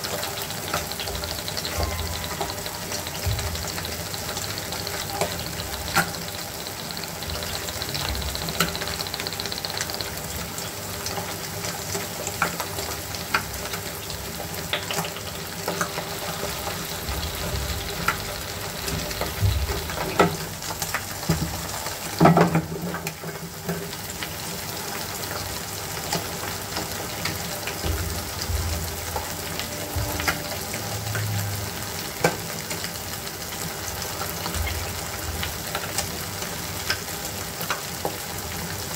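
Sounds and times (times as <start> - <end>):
eggs sizzling in oil: 0.0 - 38.9.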